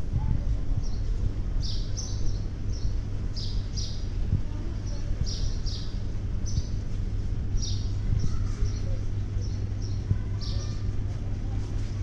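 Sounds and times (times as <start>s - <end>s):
steady low hum: 0.0s - 12.0s
small bird chirping: 1.6s - 4.1s, 4.8s - 6.8s, 7.5s - 10.9s.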